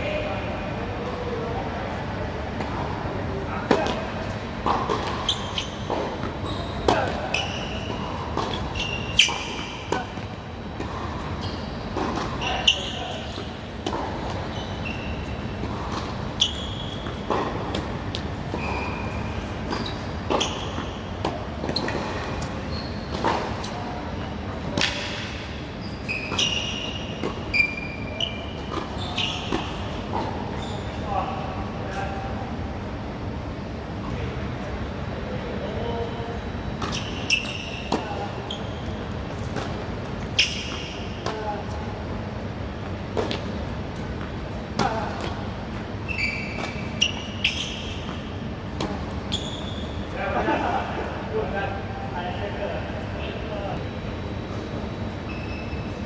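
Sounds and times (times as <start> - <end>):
tennis ball bouncing: 4.6 - 11.3, 11.9 - 12.7, 13.3 - 14.5, 15.6 - 18.8, 43.2 - 43.6
shoe squeaks on court: 4.7 - 10.2, 10.9 - 23.9, 24.8 - 31.1, 36.8 - 39.7, 40.3 - 41.0, 46.0 - 50.2, 55.2 - 56.0
racket hitting tennis ball: 11.9 - 14.5, 15.6 - 18.9, 24.6 - 25.5.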